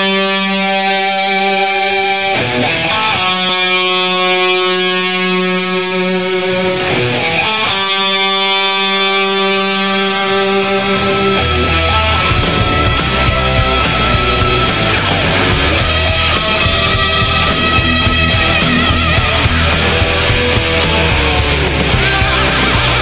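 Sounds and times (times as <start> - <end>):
electric guitar held notes: 0.0 - 23.0.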